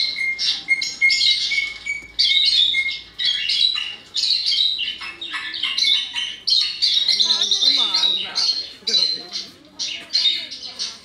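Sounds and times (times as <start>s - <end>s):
birds chattering and chirping: 0.0s - 11.0s.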